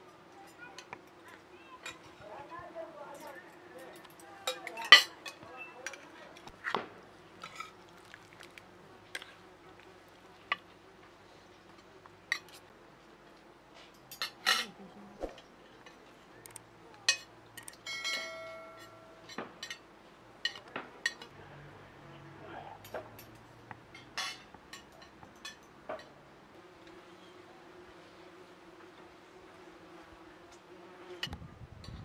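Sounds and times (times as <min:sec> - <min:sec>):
spoons clinking on plates: 0:03.2 - 0:06.1, 0:17.1 - 0:19.8, 0:24.2 - 0:25.7.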